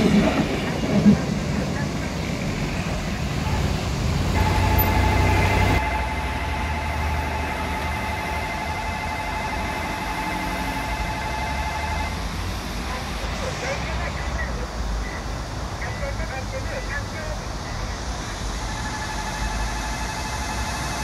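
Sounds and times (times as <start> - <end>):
road traffic rumble: 0.0 - 21.0
level crossing warning bell: 4.3 - 12.3, 18.6 - 21.0.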